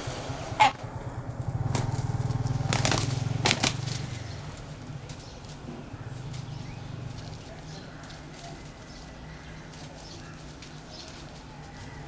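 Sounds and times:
steady low drone: 0.0s - 10.9s
wing flaps: 0.4s - 9.1s
scuffles in dry leaves: 1.4s - 12.0s.

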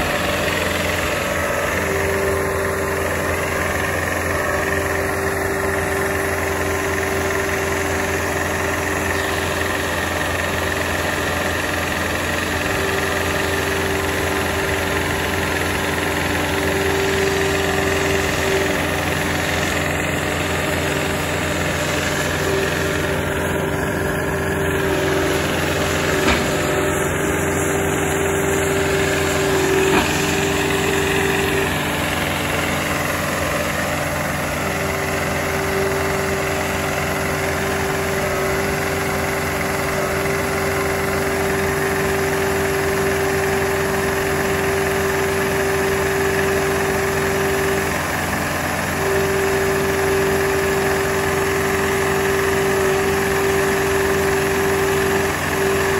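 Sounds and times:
steady whine: 0.0s - 44.1s
engine running: 0.0s - 55.9s.

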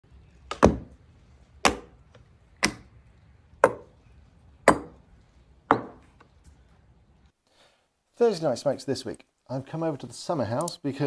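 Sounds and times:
sharp knocks: 1.6s - 1.9s, 3.6s - 3.9s, 4.7s - 5.0s.

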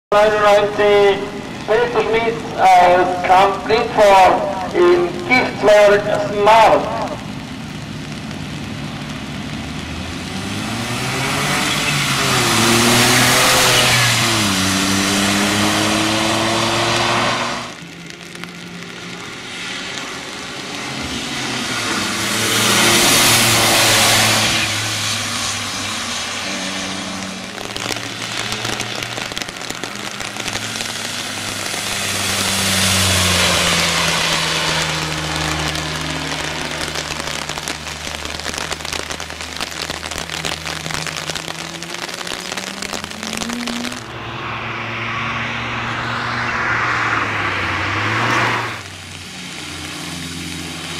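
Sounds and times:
tyre spray hiss on wet road: 0.2s - 50.9s
car engine revving and shifting: 9.1s - 37.7s, 38.4s - 50.9s.

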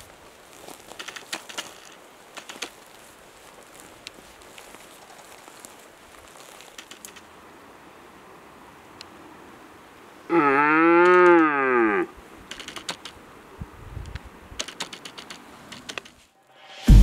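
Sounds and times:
faint clicks and ticks: 0.7s - 2.8s, 6.5s - 7.3s, 12.5s - 13.2s, 14.0s - 16.2s
deer stag roaring: 10.3s - 12.1s.

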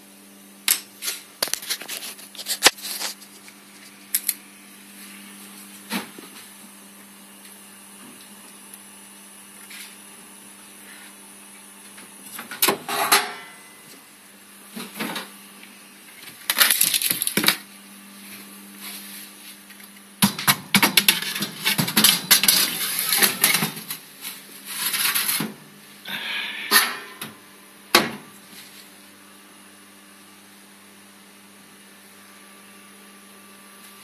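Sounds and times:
steady low hum: 0.0s - 32.4s
metal baking tray clattering: 12.8s - 13.5s.

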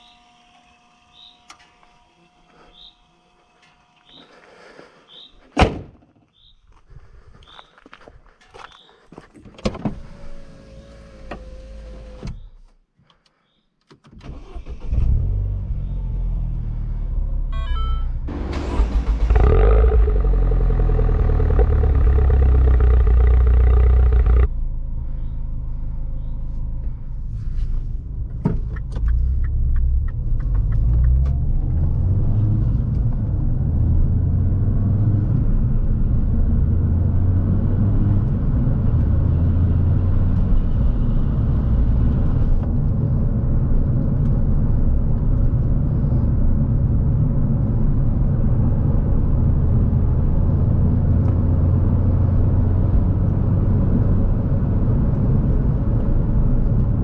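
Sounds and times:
car bonnet slammed shut: 5.6s - 6.0s
car interior while driving: 14.2s - 57.0s
loud car engine revving: 18.3s - 24.5s.

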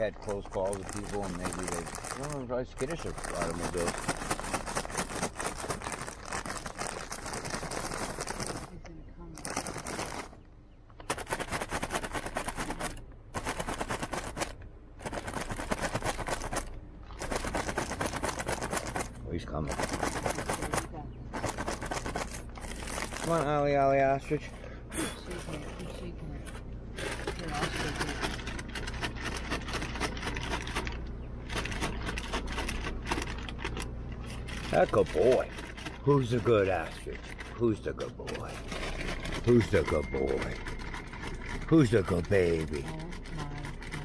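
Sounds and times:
feed rattling in container: 0.0s - 8.7s, 9.4s - 10.4s, 11.0s - 24.5s, 25.3s - 44.0s
car engine idling hum: 0.0s - 44.0s.

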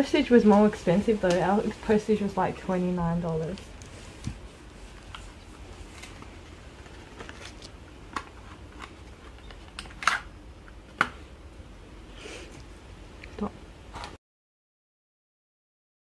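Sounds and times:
plastic packets crinkling: 5.0s - 10.0s
sharp plastic crackles: 5.0s - 10.3s.

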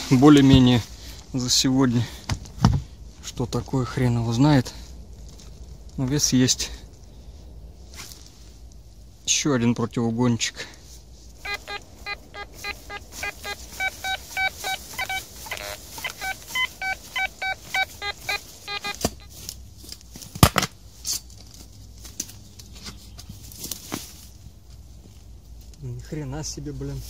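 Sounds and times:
metal detector short beeps: 11.4s - 19.4s.

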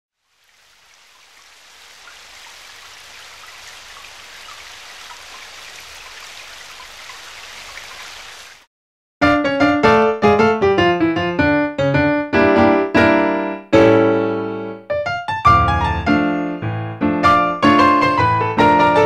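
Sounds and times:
steady rain: 0.2s - 8.7s
piano music: 9.2s - 19.0s.

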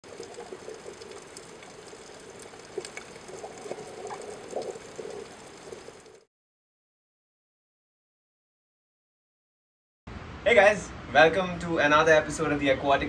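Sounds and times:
water bubbling and trickling: 0.0s - 6.3s.

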